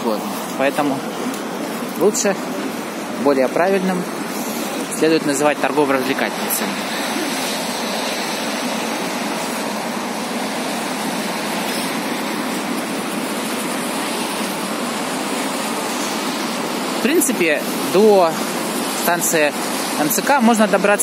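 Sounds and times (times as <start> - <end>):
city traffic rush: 0.0 - 21.0.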